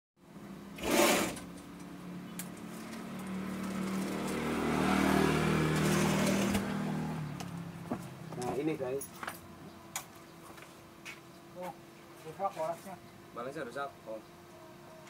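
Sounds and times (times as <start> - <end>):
small motorcycle engine running: 2.2 - 7.4.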